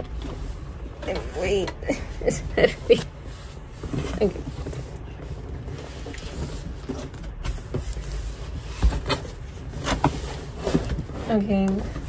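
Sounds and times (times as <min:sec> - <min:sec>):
cardboard box scraping: 0:03.0 - 0:12.0.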